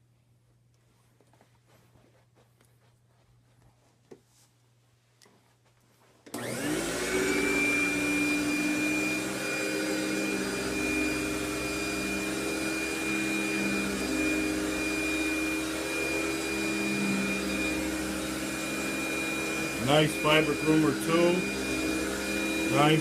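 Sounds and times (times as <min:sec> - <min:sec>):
power nozzle on carpet: 0:06.3 - 0:23.0
vacuum cleaner whining: 0:06.3 - 0:23.0.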